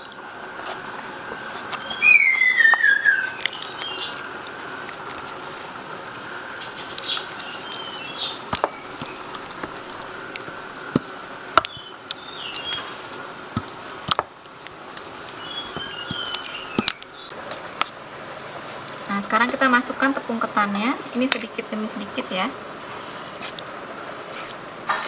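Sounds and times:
faint steady whine: 0.0 - 25.0
small birds chirping: 1.5 - 5.5, 6.2 - 10.6, 11.5 - 14.0, 15.0 - 17.4.

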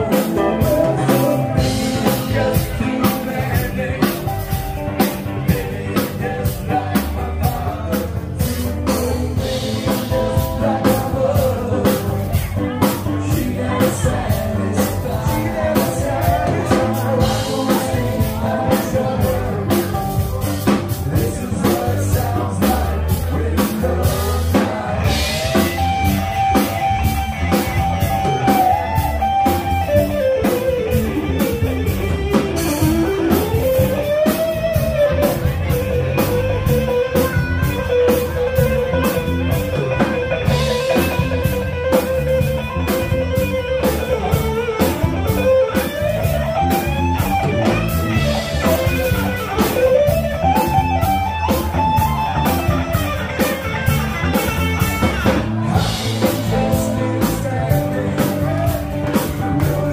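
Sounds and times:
live rock band playing: 0.0 - 59.9
steady drum beat: 0.0 - 59.9
electric guitar solo: 25.1 - 59.9.

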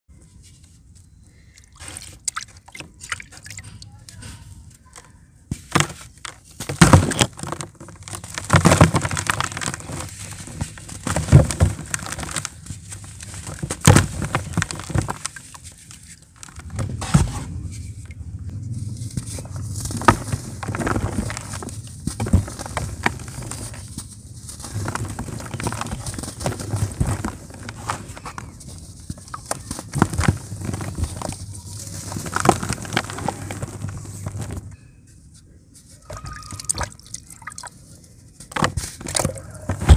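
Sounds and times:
crumbs pattering into plastic tub: 5.5 - 18.1, 18.8 - 34.8
cement block crunching and cracking: 5.6 - 17.3, 18.8 - 34.8.

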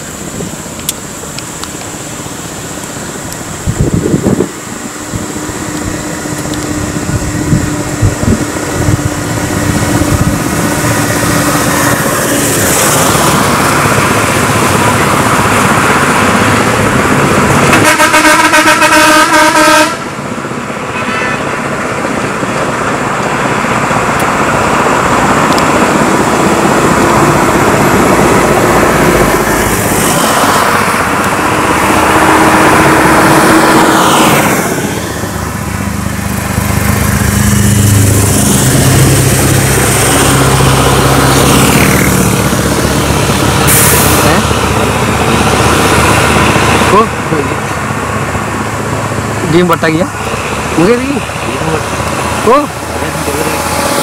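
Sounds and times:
road traffic passing: 0.0 - 54.0
vehicle horn: 17.7 - 20.1, 20.9 - 21.6.

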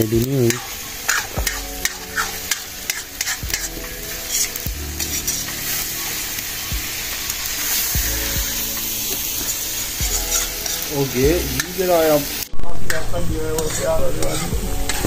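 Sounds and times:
food sizzling in a pan: 0.0 - 15.0
metal spoon scraping pan: 0.4 - 6.2, 9.4 - 10.9, 11.5 - 15.0.

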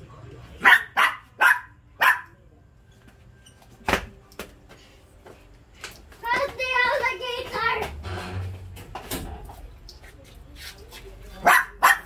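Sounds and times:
dog barking: 0.6 - 2.4, 11.4 - 12.0.

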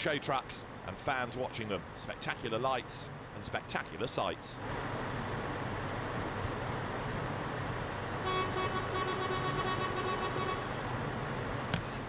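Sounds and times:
crowd of trucks din: 0.0 - 12.0
truck air horn blast: 8.2 - 10.7.

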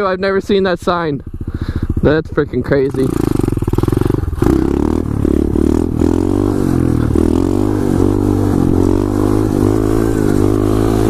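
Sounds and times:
motorbike engine revving: 1.2 - 11.0.

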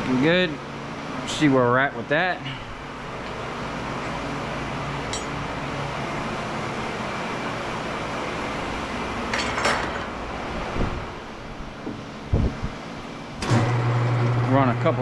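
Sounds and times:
mechanical hum: 0.0 - 15.0
light metallic clink: 5.1 - 5.4.

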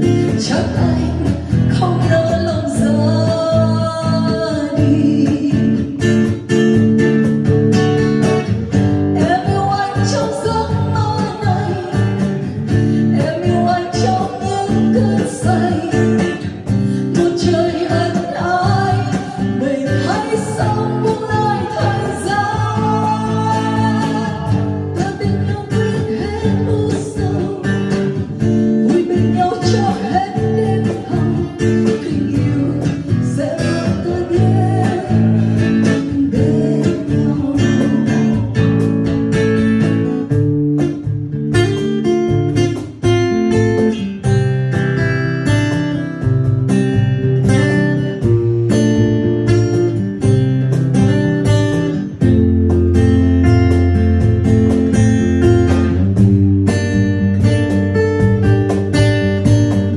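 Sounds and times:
woman singing: 0.0 - 7.1, 8.3 - 40.3
acoustic guitar strumming: 0.0 - 59.9
cajon beat: 0.0 - 59.9.

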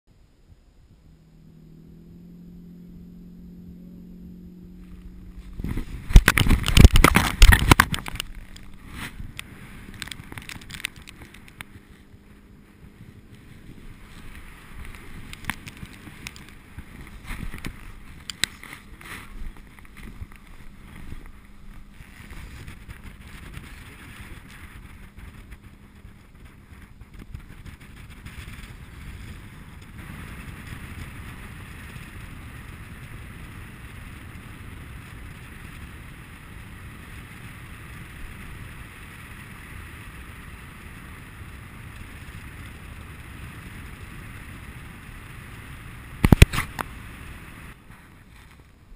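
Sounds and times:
wind rushing over microphone: 0.5 - 48.3
sharp clicks and knocks: 5.6 - 11.7.

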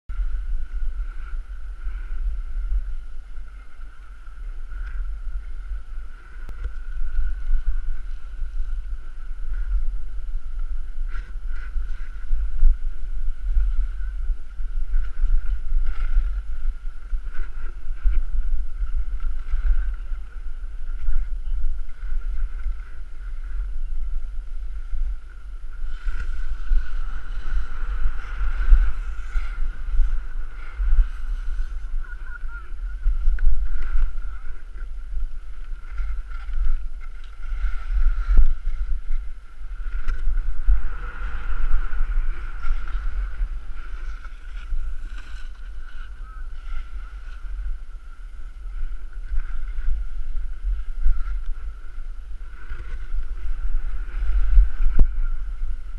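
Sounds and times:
wind buffeting microphone: 0.1 - 55.9
skis hissing on snow: 25.8 - 32.5.

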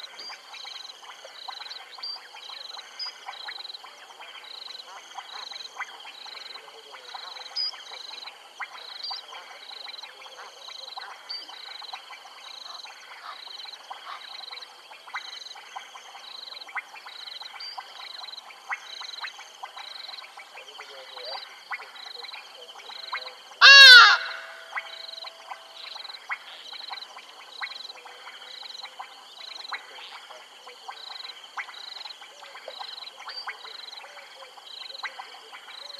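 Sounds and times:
frogs and insects calling: 0.0 - 35.9
loud falling animal call: 23.6 - 24.8.

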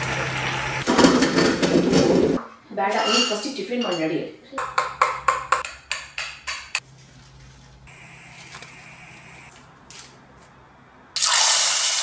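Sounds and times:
food deep-frying in hot oil: 0.0 - 1.5, 11.2 - 12.0.

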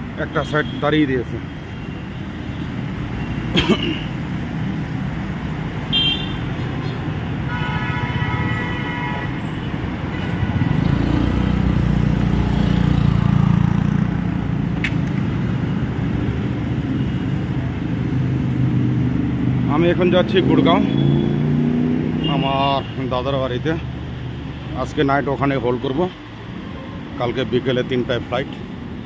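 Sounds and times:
road traffic rumble: 0.0 - 29.0
car horn honking: 5.9 - 9.6
passing vehicle engine: 10.5 - 15.5, 17.6 - 22.2.

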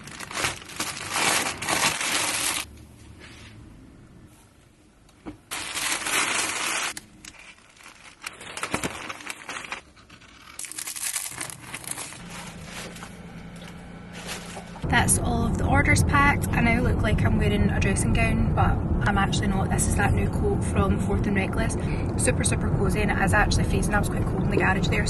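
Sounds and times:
plastic bags rustling: 0.0 - 2.7, 5.5 - 14.8.

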